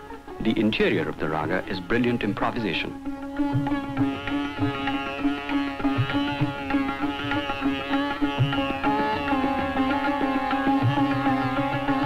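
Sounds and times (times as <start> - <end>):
sitar plucked runs: 0.0 - 12.0
tabla strokes: 0.0 - 12.0
drone note: 3.0 - 12.0.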